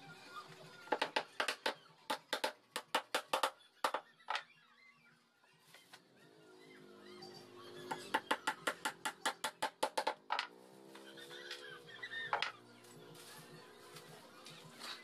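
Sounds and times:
hammer striking nails into wood: 1.0 - 4.0, 8.1 - 10.5.

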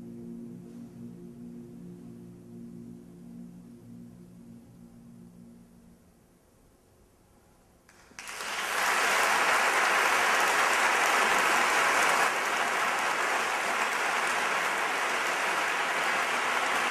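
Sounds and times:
audience applause: 8.0 - 16.9.

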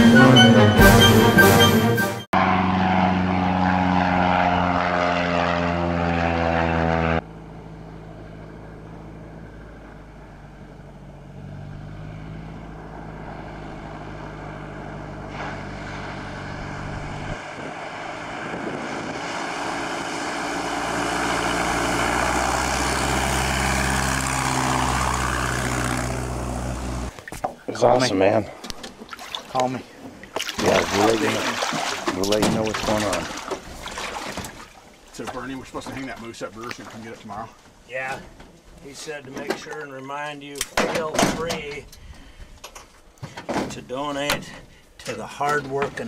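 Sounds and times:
plane piston engine and propeller: 2.4 - 27.2.

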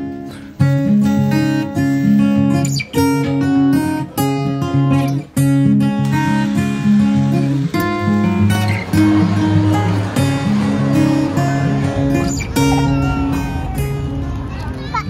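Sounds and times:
instrumental background music: 0.0 - 14.5.

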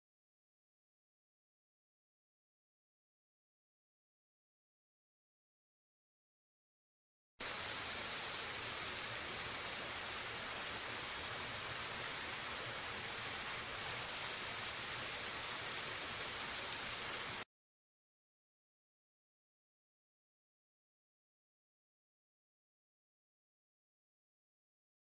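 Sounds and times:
forest ambience hiss: 7.4 - 17.4.

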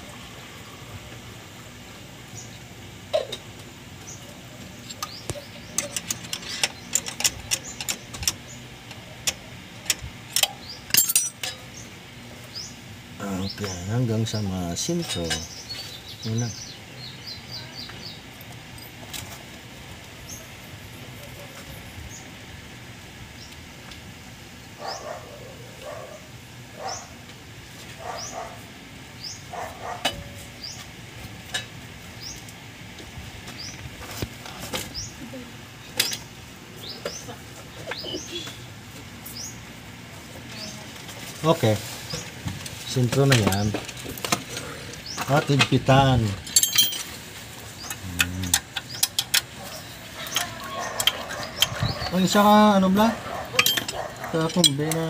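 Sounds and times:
faint birds chirping: 0.0 - 55.0
light metallic clicks and clinks: 9.3 - 11.8, 46.4 - 47.2, 53.6 - 55.0.

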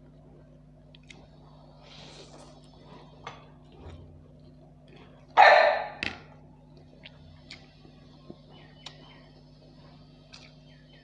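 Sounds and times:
dog barking: 5.4 - 6.0.

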